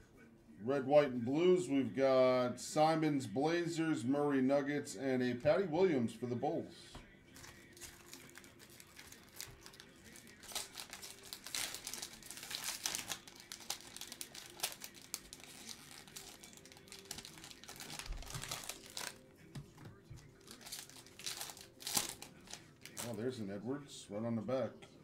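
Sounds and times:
plastic wrappers crinkling and tearing: 7.4s - 23.3s.

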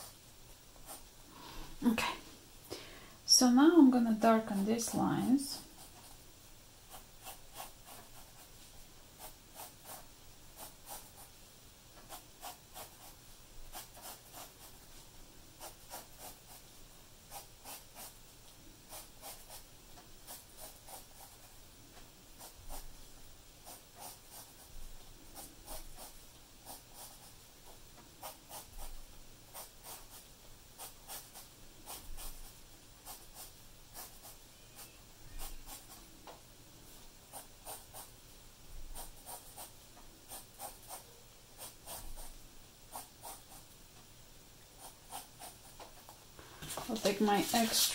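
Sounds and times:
pencil scratching on paper: 0.8s - 1.1s, 4.4s - 6.2s, 6.9s - 8.6s, 9.2s - 11.3s, 12.0s - 14.9s, 15.6s - 16.7s, 17.3s - 18.2s, 18.9s - 21.5s, 22.4s - 23.0s, 23.6s - 36.0s, 37.3s - 38.1s, 38.9s - 42.3s, 42.9s - 43.7s, 44.8s - 46.2s.

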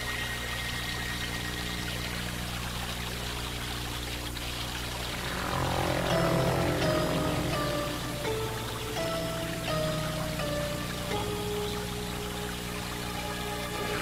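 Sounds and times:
low music drone: 4.4s - 14.0s.

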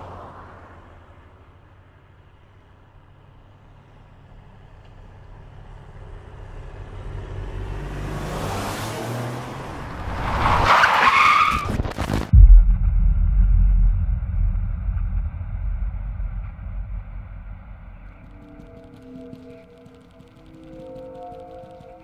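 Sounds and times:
car tyres screeching: 8.1s - 12.2s
crash boom: 11.6s - 19.7s
low rumble: 12.3s - 22.0s.

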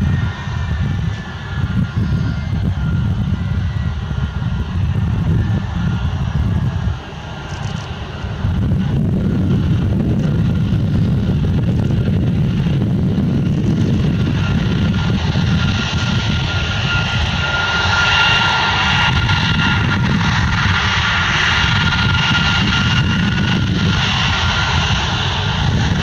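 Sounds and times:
jet engines rumbling and whining: 0.0s - 26.0s.

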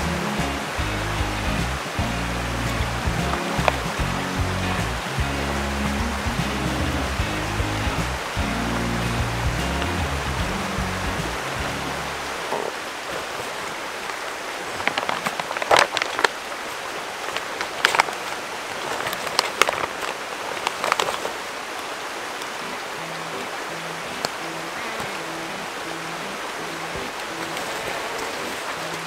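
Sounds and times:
creek water flowing: 0.0s - 29.0s
plastic pouch crinkling: 14.7s - 16.6s, 17.2s - 21.4s.

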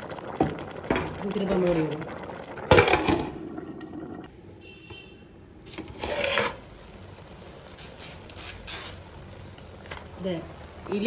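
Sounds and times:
pot lid clatter: 2.7s - 3.4s.

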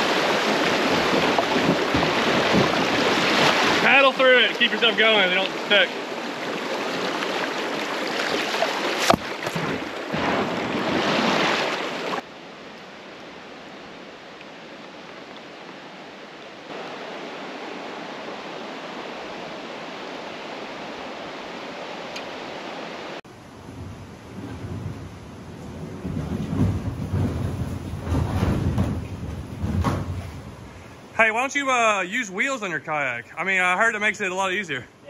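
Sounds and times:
water rushing over rocks: 0.0s - 23.2s.

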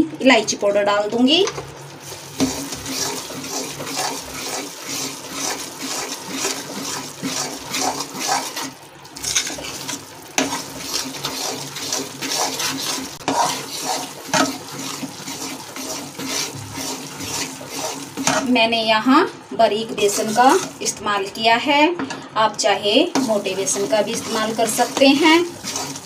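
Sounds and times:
metal spatula scraping a pan: 2.4s - 18.6s, 19.9s - 21.0s, 23.1s - 26.0s.

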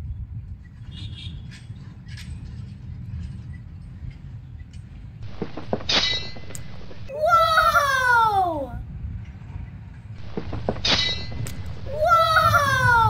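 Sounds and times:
low outdoor rumble: 1.4s - 13.0s.

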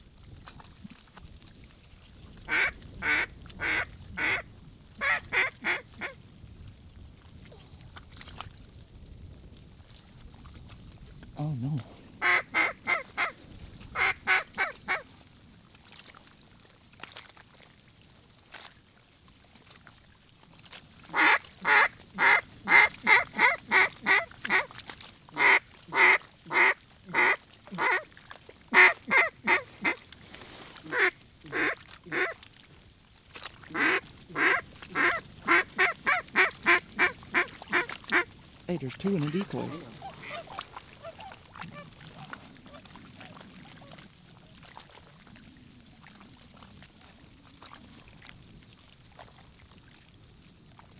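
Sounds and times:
duck call quacking: 2.5s - 4.4s, 5.0s - 6.2s, 12.2s - 13.3s, 14.0s - 15.0s, 21.1s - 24.7s, 25.4s - 28.0s, 28.7s - 30.0s, 30.9s - 32.4s, 33.8s - 38.3s.

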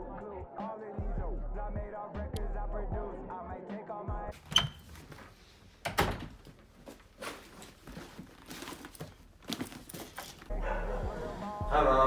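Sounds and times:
song playing: 10.5s - 12.0s.

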